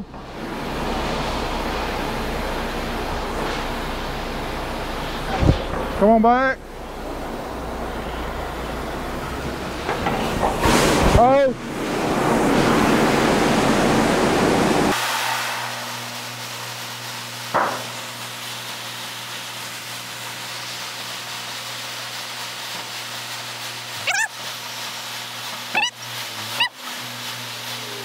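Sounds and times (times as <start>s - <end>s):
steady hum: 0.0s - 18.8s
corn pouring into trailer: 14.9s - 28.0s.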